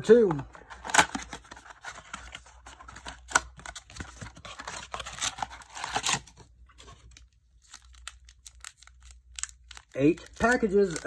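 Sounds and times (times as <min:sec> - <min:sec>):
wrapping crinkling: 0:00.7 - 0:11.0
cardboard box tearing: 0:04.0 - 0:06.3.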